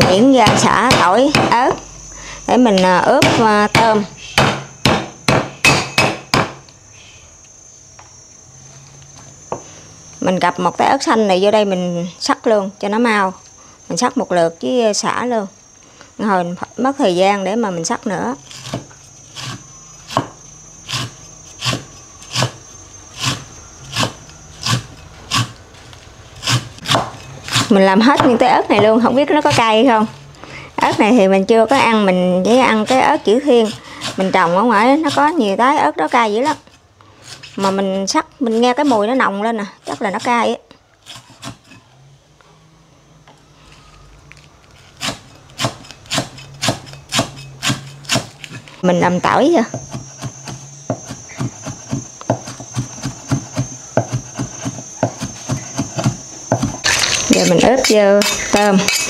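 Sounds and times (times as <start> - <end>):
cleaver chopping on wooden block: 0.0 - 1.6, 3.2 - 6.6, 26.4 - 29.0, 45.0 - 48.5, 49.7 - 57.1.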